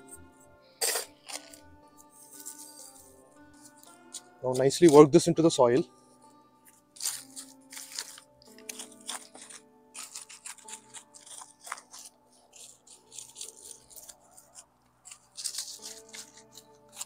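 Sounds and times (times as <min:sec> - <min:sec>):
faint background music: 0:00.0 - 0:17.0
hand cultivator raking soil: 0:07.0 - 0:17.0.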